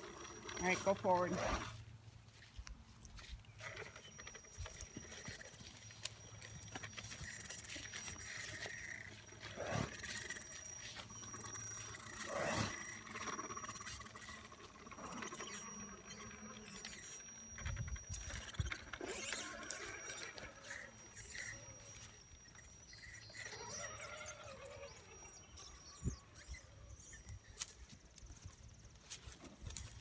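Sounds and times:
faint high whine: 0.0 - 30.0.

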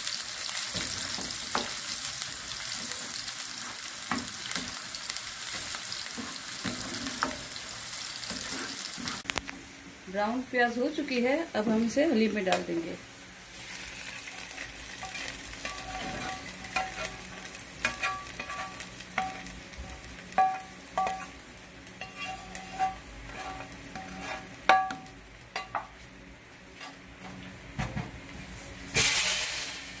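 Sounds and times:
light sizzle: 0.0 - 30.0
metal spoon scraping frying pan: 14.0 - 19.5, 20.4 - 21.4, 22.0 - 25.0.

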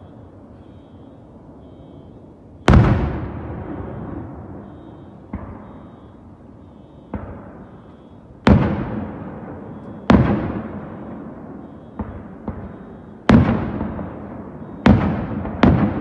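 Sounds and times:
firework bangs with rumble: 2.7 - 4.3, 5.3 - 5.7, 8.5 - 16.0.

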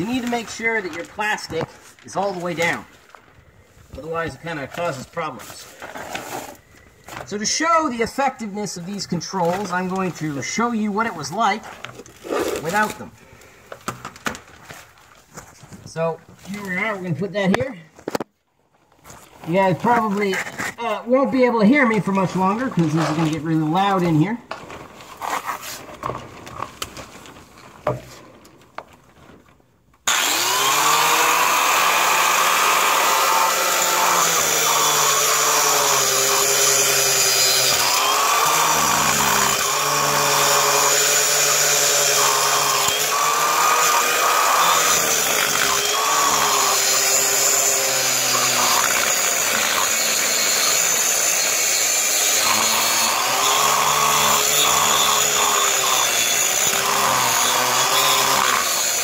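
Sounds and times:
angle grinder grinding: 30.1 - 59.0.

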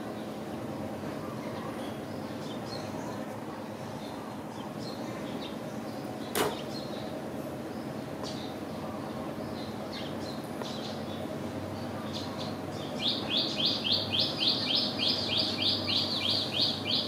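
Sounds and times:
outdoor background hum: 0.0 - 17.0
sharp click: 6.3 - 6.7.

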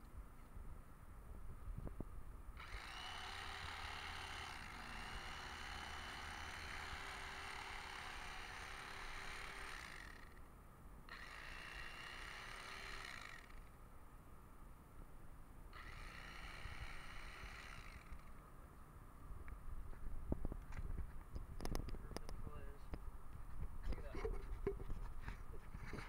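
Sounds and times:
electric knife motor running: 2.6 - 10.4, 11.1 - 13.7, 15.8 - 18.4.

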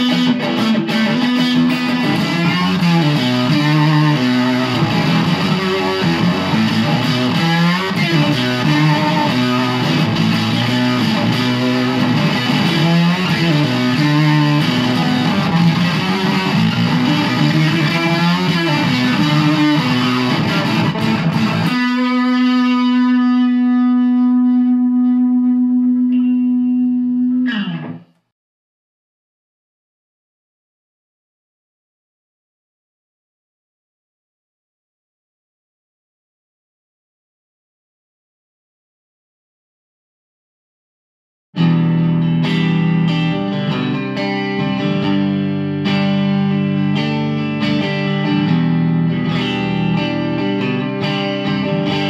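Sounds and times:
overdriven electric guitar: 0.0 - 28.3, 41.6 - 52.0.

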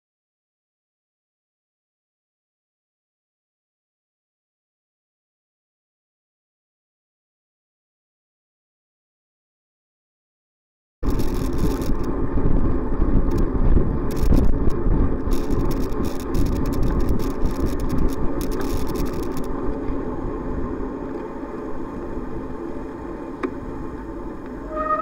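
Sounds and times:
clicks and crackles: 11.0 - 12.2, 13.2 - 20.0
wind buffeting microphone: 11.0 - 22.6
tyre noise on wet road: 11.0 - 25.0.

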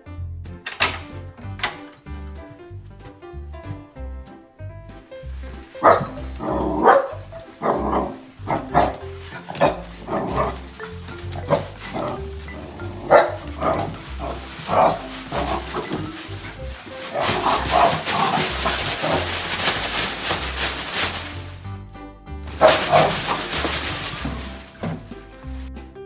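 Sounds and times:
dog barking sharply: 5.8 - 6.2, 6.8 - 9.0, 13.1 - 13.8, 22.6 - 23.2.

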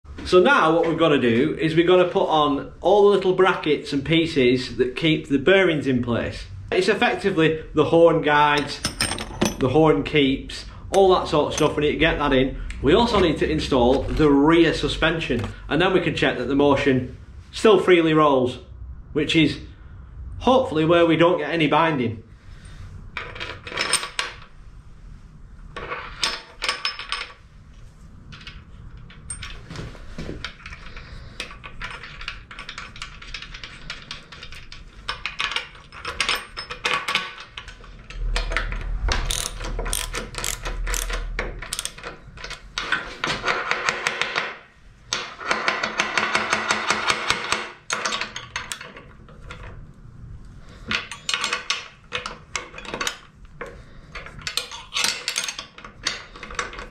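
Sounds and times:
metal parts clinking and knocking: 8.5 - 9.8, 22.6 - 24.5, 25.8 - 27.4, 28.3 - 29.8, 30.4 - 44.3, 45.1 - 49.8, 50.8 - 56.9
socket ratchet clicking rapidly: 39.2 - 42.1.

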